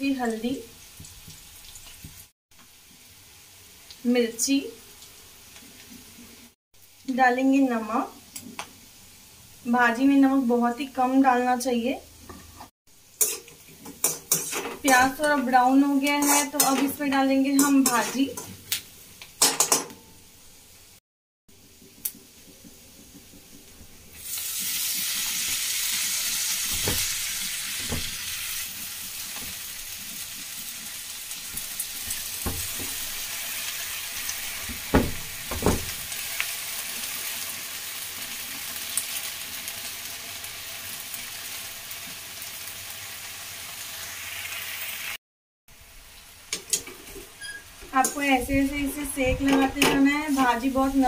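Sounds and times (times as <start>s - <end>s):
leaves sizzling in hot oil: 0.0s - 12.1s, 12.9s - 19.4s, 20.5s - 51.0s.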